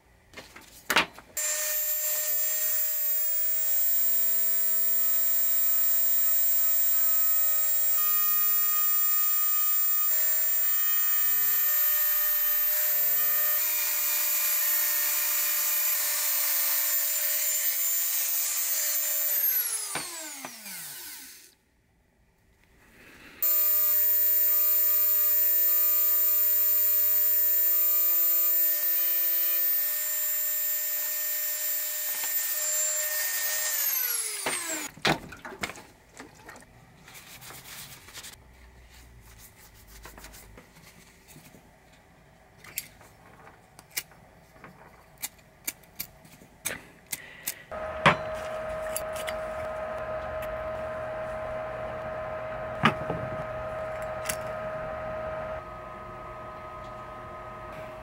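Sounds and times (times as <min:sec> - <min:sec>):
rotary tool high whine: 0:01.4 - 0:21.5, 0:23.4 - 0:34.9, 0:47.7 - 0:58.0.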